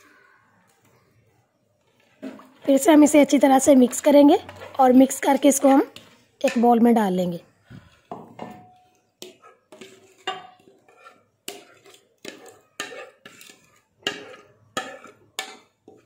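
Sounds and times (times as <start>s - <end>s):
spoon scraping a bowl: 8.7s - 16.0s.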